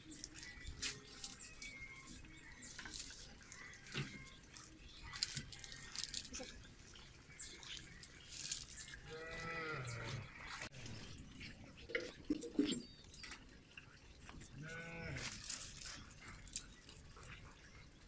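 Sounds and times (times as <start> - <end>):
farm animal calling: 0.0 - 10.7
dry twigs snapping: 5.1 - 6.4.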